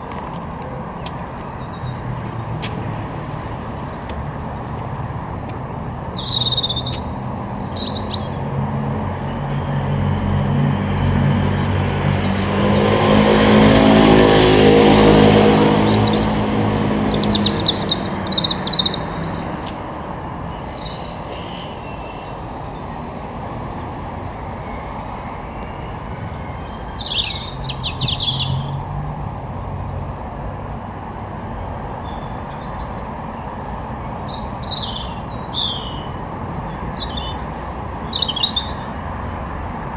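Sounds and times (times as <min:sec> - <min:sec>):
distant traffic hum: 0:00.0 - 0:39.9
small birds chirping: 0:05.4 - 0:09.0, 0:15.8 - 0:23.0, 0:26.0 - 0:28.8, 0:34.2 - 0:39.0
car passing close by: 0:08.4 - 0:20.2.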